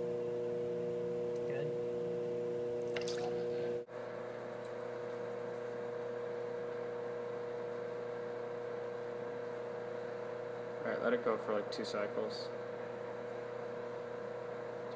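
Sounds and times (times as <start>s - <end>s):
pump hum: 0.0s - 3.9s.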